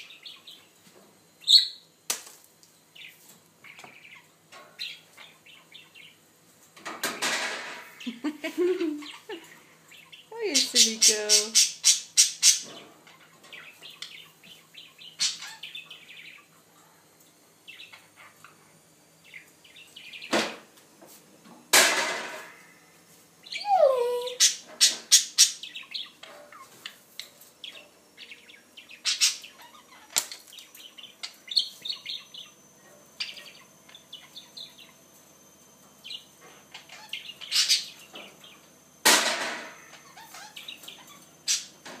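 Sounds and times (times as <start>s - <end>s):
budgerigar chirping: 1.4s - 1.8s, 9.9s - 12.7s, 28.2s - 30.1s, 36.0s - 38.6s.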